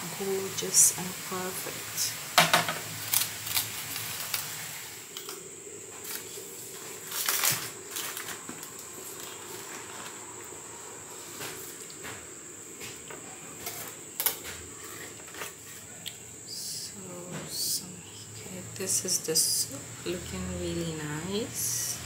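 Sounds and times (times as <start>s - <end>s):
aluminium foil crinkling: 2.9s - 5.4s, 6.0s - 10.3s.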